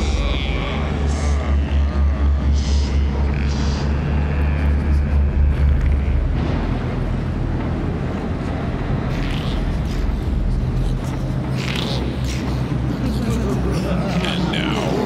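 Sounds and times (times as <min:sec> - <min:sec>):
deep throbbing rumble: 0:00.0 - 0:15.0.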